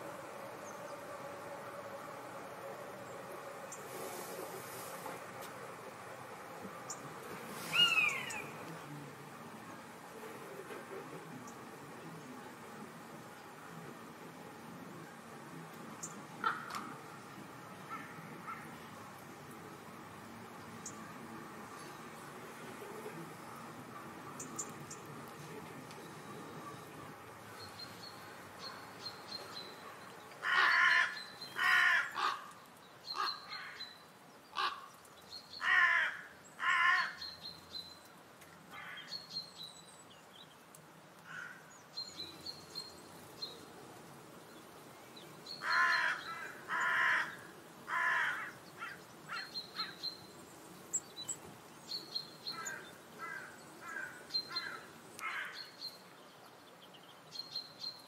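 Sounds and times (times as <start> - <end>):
birds harsh calls: 6.9 - 8.6, 16.0 - 17.2, 26.1 - 37.6, 45.2 - 56.1.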